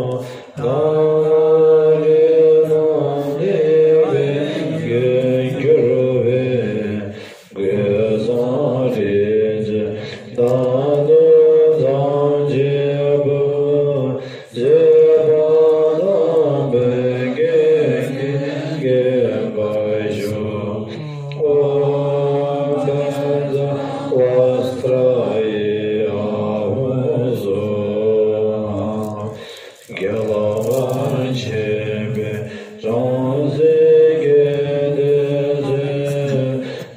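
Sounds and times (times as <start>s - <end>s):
prayers chanted aloud: 0.0s - 36.9s.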